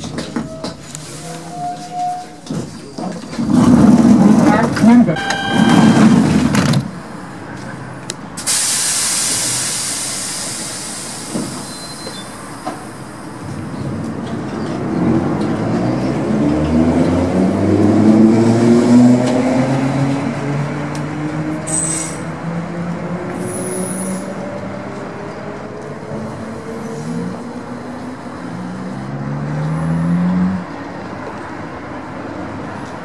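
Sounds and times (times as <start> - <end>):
compressed air hiss: 8.4 - 11.8.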